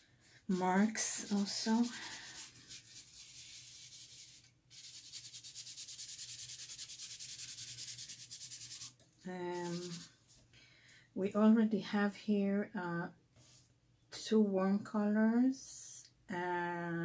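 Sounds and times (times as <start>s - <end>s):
paintbrush scrubbing on paper: 0.5s - 10.2s.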